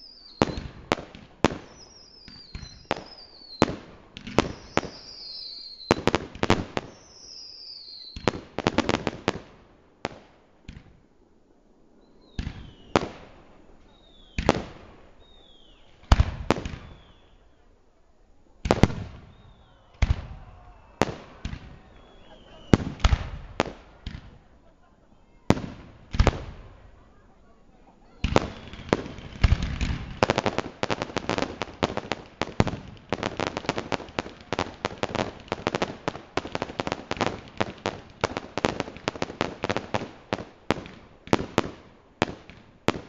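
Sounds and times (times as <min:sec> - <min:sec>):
fireworks whistles falling in pitch: 0:00.0 - 0:03.8, 0:04.4 - 0:08.4, 0:12.0 - 0:13.1, 0:13.8 - 0:17.7, 0:18.7 - 0:24.3, 0:28.1 - 0:34.0
fireworks bursting with bangs: 0:00.0 - 0:11.1, 0:12.0 - 0:17.7, 0:18.6 - 0:43.0.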